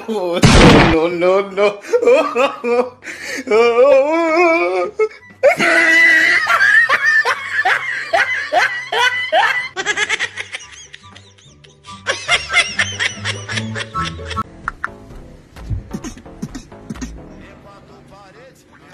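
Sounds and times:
person laughing loudly: 0:05.4 - 0:15.0
background music with bass line: 0:13.2 - 0:17.5.

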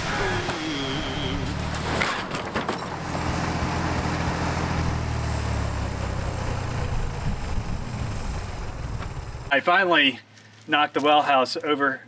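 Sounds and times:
tractor engine idling: 0:00.0 - 0:10.4
wood and metal knocks and clatter: 0:01.6 - 0:03.4.

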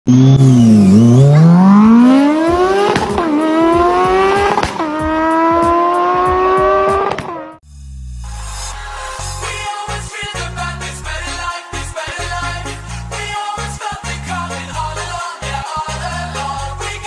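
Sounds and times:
man imitating motorbike engine: 0:00.1 - 0:07.3.

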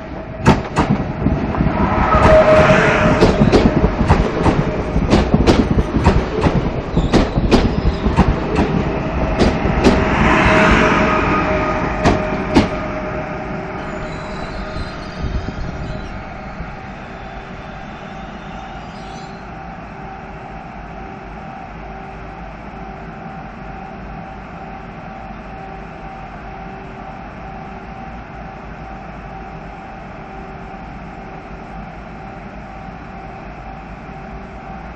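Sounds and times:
electric train running hum: 0:00.0 - 0:34.9
wheel squeal: 0:13.8 - 0:19.5.

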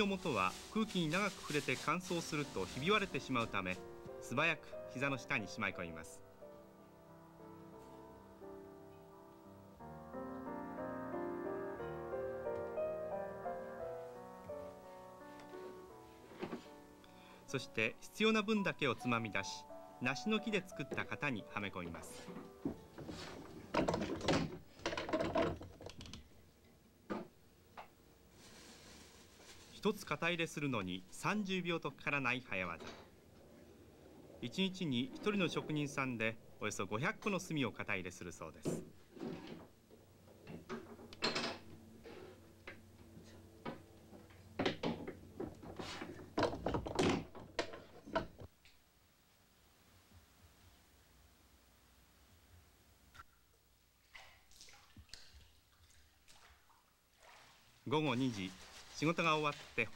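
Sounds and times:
wooden moulds clattering: 0:22.2 - 0:26.2, 0:43.6 - 0:48.5
wooden moulds clicking and knocking: 0:22.7 - 0:26.3, 0:43.6 - 0:48.5.

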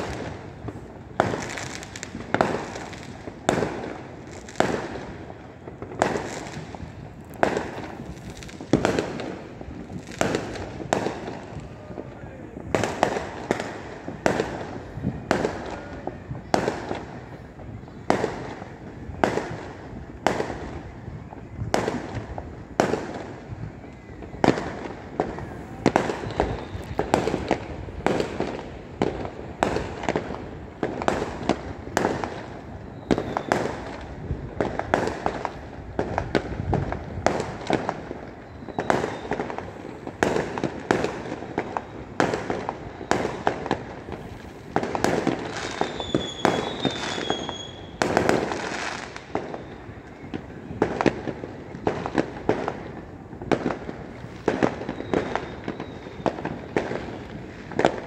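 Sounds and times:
crackling rumble: 0:00.0 - 0:46.0
fireworks bursting with sharp bangs: 0:00.0 - 0:58.0
high firework whistle: 0:00.0 - 0:58.0.

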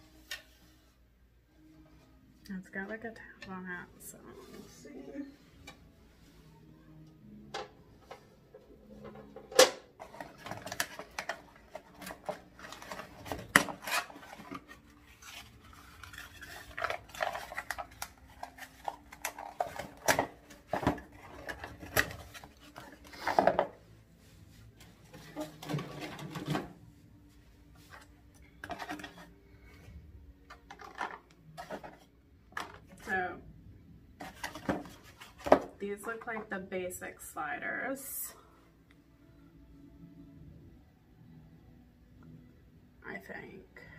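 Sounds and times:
cardboard rustling and scraping: 0:34.2 - 0:35.7.

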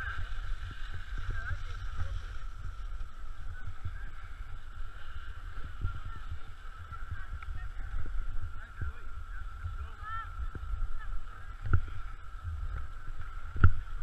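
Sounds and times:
skis thumping over snow: 0:00.0 - 0:08.3
wind rumbling on microphone: 0:00.0 - 0:14.0.

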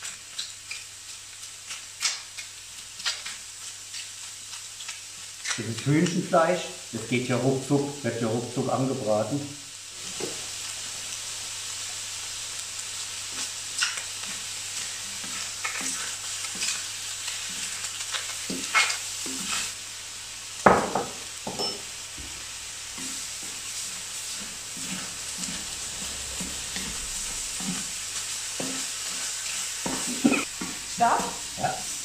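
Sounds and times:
chicken sizzling in a wok: 0:00.0 - 0:32.0
wooden spatula scraping a pan: 0:13.3 - 0:19.8, 0:22.2 - 0:32.0.

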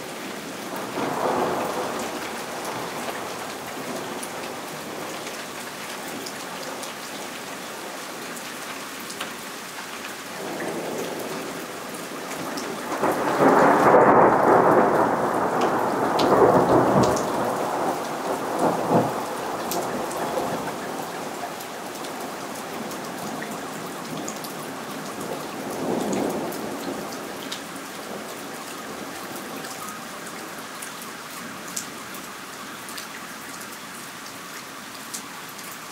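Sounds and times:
steady rain: 0:00.0 - 0:35.9
thunder: 0:12.6 - 0:20.8.

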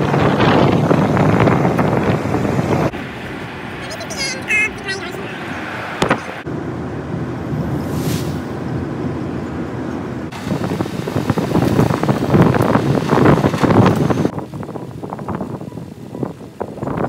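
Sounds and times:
wind on microphone: 0:00.0 - 0:04.0, 0:04.8 - 0:06.5, 0:10.0 - 0:17.0
road noise: 0:00.0 - 0:17.0
tyres rumbling on dirt track: 0:00.0 - 0:17.0.

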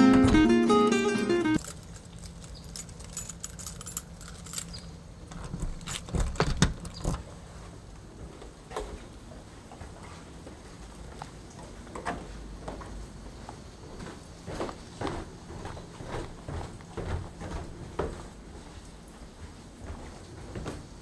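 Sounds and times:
keys jangling on a ring: 0:01.6 - 0:07.1.

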